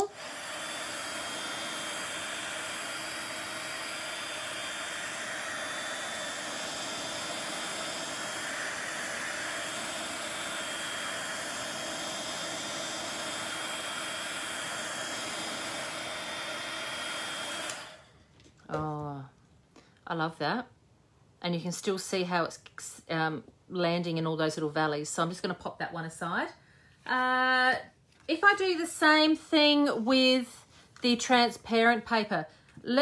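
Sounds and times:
heat gun blowing hot air: 0:00.0 - 0:18.2.

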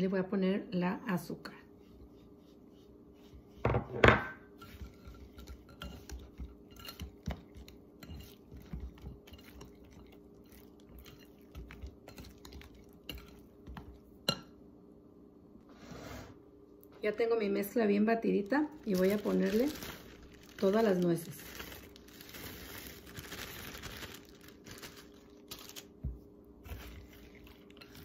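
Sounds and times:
whisk beating batter in glass bowl: 0:04.5 - 0:14.1.

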